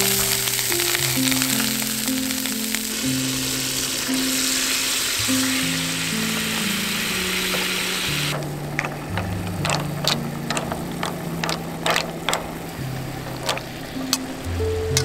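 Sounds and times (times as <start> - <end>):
clams sizzling in a frying pan: 0.0 - 15.0
soft background music: 0.0 - 15.0
sharp irregular clicks and clinks: 8.3 - 15.0.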